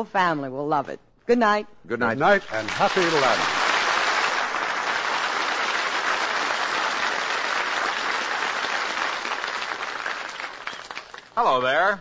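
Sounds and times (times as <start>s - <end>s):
audience applauding: 2.3s - 11.4s.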